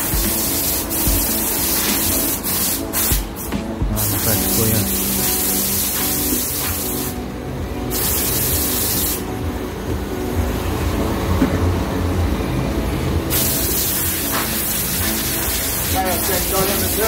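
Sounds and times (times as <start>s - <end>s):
pressure washer spraying water: 0.0s - 7.2s, 7.9s - 9.3s, 13.3s - 17.0s
steady low hum: 2.8s - 17.0s.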